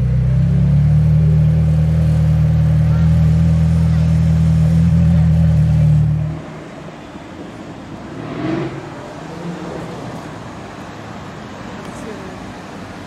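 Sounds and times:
sports car engine idling: 0.0 - 6.8
street traffic noise: 0.0 - 13.0
car driving up: 7.4 - 11.0.

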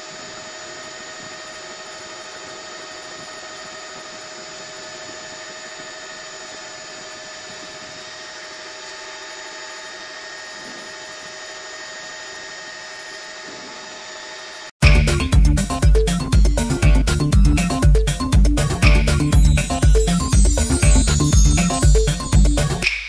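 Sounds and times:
helicopter turbine and rotor drone: 0.0 - 14.8, 15.5 - 22.8
high whining tones: 14.3 - 23.0.

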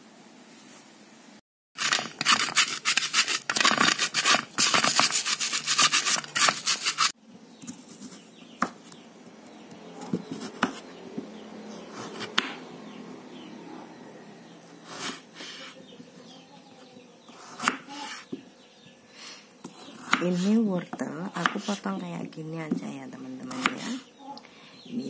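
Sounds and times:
knife cutting on wooden board: 1.8 - 7.1, 10.0 - 10.9
pestle grinding in stone mortar: 1.8 - 7.2.

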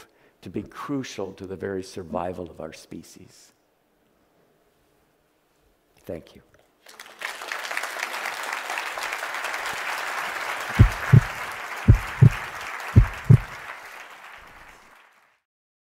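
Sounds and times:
audience applauding: 6.8 - 15.4
low double thumps: 10.8 - 12.4, 13.0 - 13.5.

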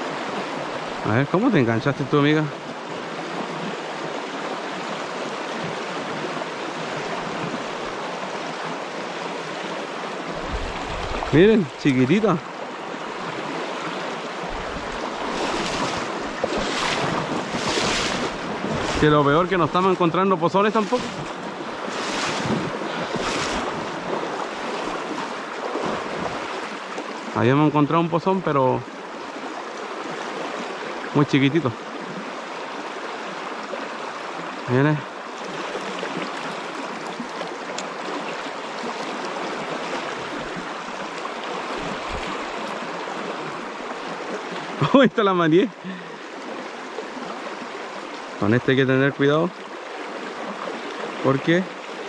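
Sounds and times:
river current rushing: 0.0 - 52.0.

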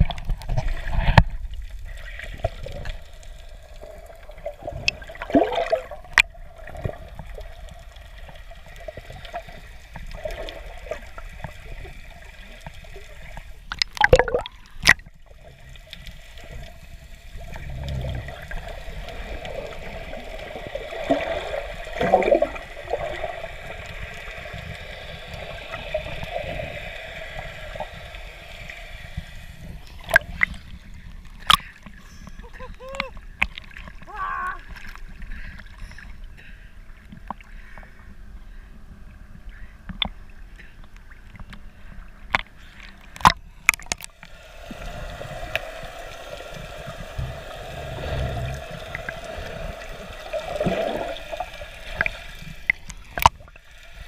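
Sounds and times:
gurgling bubbles: 0.0 - 31.6, 43.2 - 54.0.

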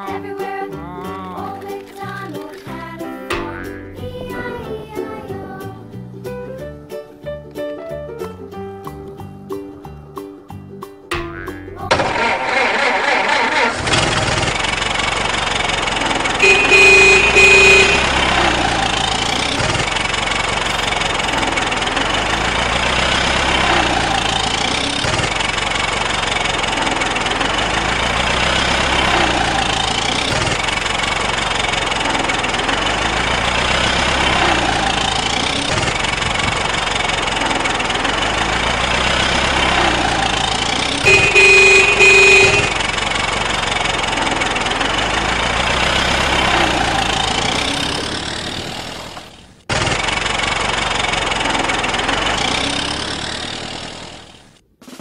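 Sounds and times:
truck engine running: 0.8 - 6.9, 8.4 - 54.6
horn blast: 16.3 - 19.4, 41.0 - 42.9.

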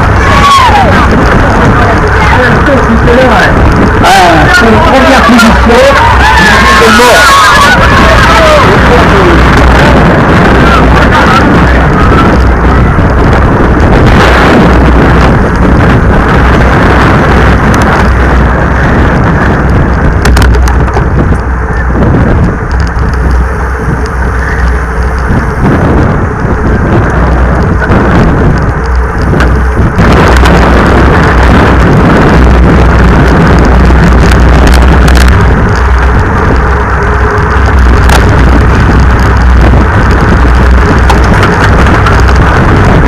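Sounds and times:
road rumble: 0.0 - 43.0
wind buffeting: 0.0 - 43.0.

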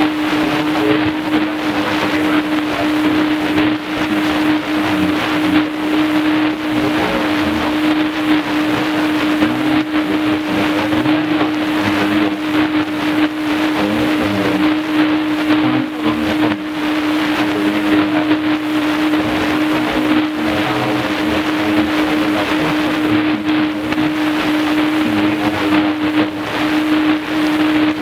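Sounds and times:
constant low tone: 0.0 - 28.0
radio static hiss: 0.0 - 28.0
weak radio broadcast: 0.0 - 28.0.

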